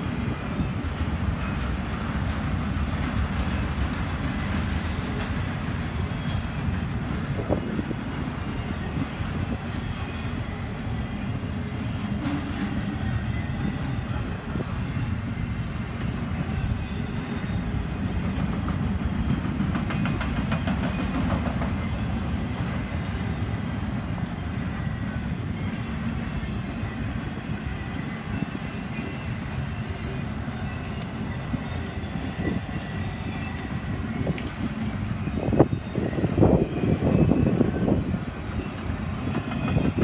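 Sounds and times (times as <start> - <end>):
train wheels rumbling on rail: 0.0 - 40.0
wind buffeting microphone: 6.7 - 9.7, 33.8 - 40.0.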